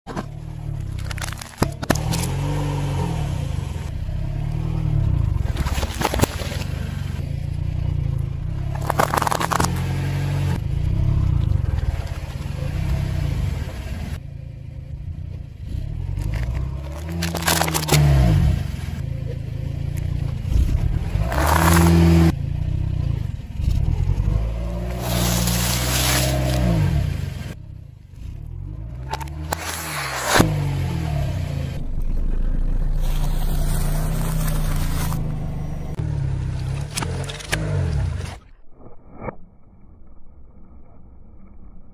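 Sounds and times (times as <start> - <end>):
objects crunching under tyre: 0.1 - 2.6, 5.3 - 7.2, 8.5 - 10.6, 15.9 - 18.6, 20.5 - 22.3, 24.6 - 27.1, 29.0 - 31.0, 31.9 - 35.6
car tyre rumble: 0.1 - 41.9.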